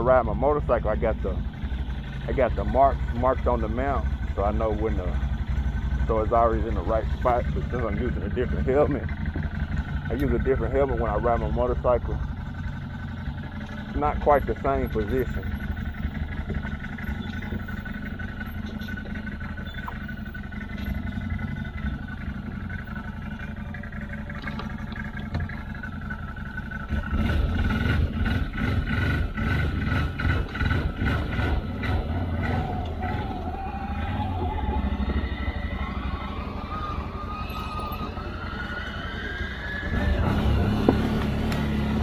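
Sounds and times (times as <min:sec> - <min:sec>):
atv engine running: 0:00.0 - 0:42.0
whine rising in pitch: 0:32.4 - 0:42.0.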